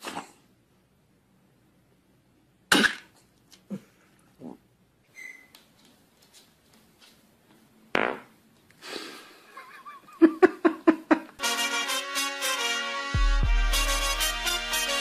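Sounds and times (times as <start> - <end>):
buzzy fart sounds: 7.9 - 8.3.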